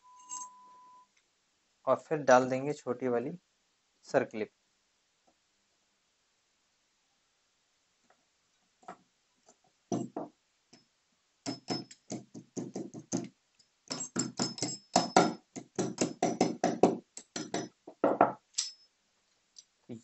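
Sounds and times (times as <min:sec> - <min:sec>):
metallic clicks of circlip pliers: 0:18.6 - 0:18.8.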